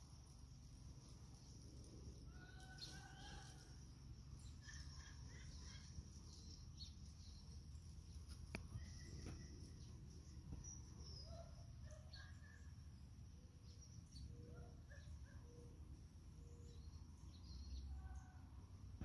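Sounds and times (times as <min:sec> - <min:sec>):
low steady rumble: 0:00.0 - 0:11.9
faint bird chirps: 0:00.0 - 0:19.0.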